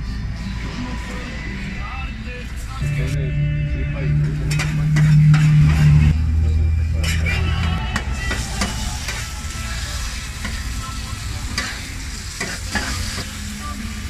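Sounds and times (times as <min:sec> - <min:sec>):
low steady hum: 0:00.0 - 0:12.2
meat sizzling on a griddle: 0:08.3 - 0:14.0.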